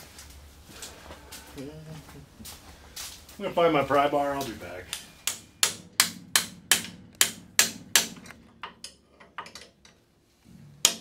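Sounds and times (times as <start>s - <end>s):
hammer striking steel: 4.9s - 9.0s.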